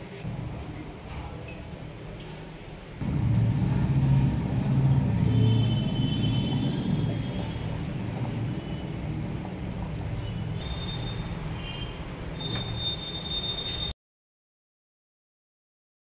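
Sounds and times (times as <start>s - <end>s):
gravy bubbling in a pot: 3.0s - 13.0s.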